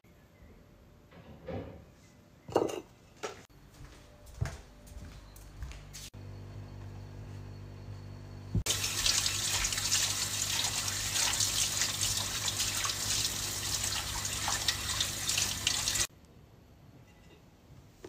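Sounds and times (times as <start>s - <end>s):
tap water splashing on a plate: 8.7s - 13.0s.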